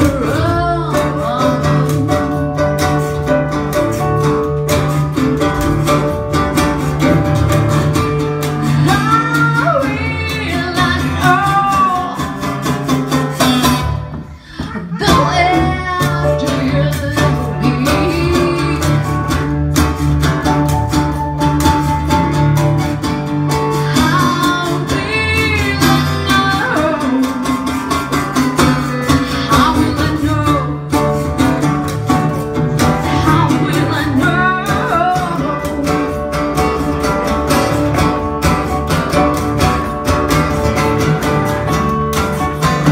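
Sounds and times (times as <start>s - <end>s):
woman singing into microphone: 0.0s - 2.6s, 8.7s - 12.8s, 13.7s - 19.3s, 23.8s - 27.8s, 29.1s - 31.1s, 32.8s - 36.5s
acoustic guitar: 0.0s - 42.9s.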